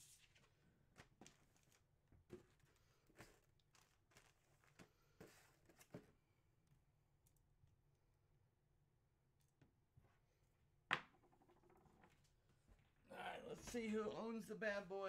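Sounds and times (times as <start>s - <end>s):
plastic packaging crinkling: 2.4s - 4.8s.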